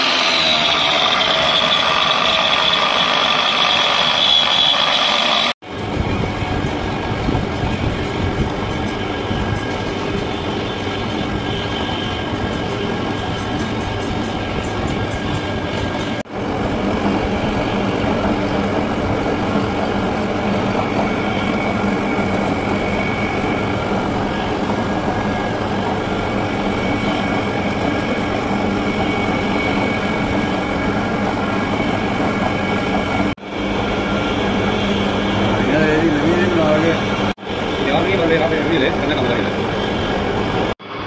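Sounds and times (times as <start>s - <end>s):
metal lathe cutting metal: 0.0s - 5.6s, 12.9s - 40.1s.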